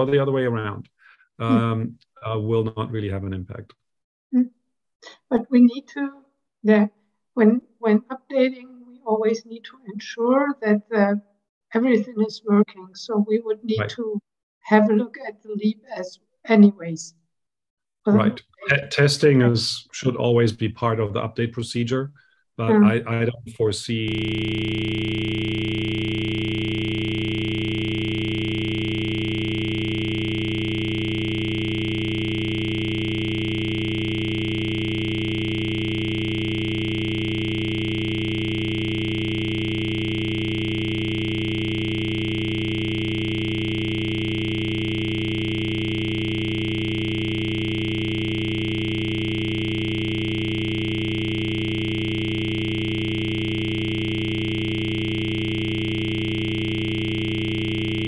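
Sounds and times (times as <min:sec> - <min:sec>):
steady electronic tone: 0:22.6 - 0:58.0.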